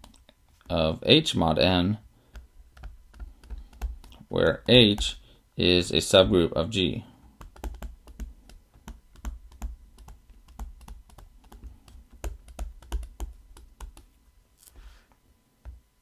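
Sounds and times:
stylus tapping on tablet screen: 2.3s - 5.2s, 7.2s - 14.1s.

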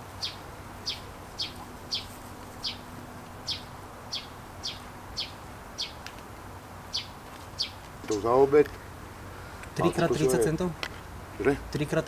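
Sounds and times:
small bird chirping: 0.1s - 6.1s, 6.9s - 7.9s.

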